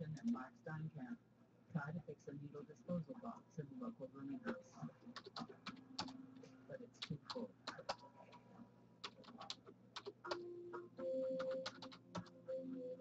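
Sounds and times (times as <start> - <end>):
typing on computer keyboard: 5.2 - 6.2, 7.0 - 8.0, 9.0 - 10.4, 11.0 - 12.4.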